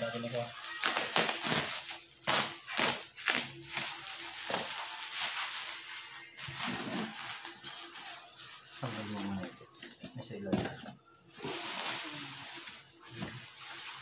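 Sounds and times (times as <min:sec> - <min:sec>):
bubble wrap crinkling: 0:00.0 - 0:10.0, 0:11.3 - 0:14.0
knife slitting packing tape: 0:00.8 - 0:05.5.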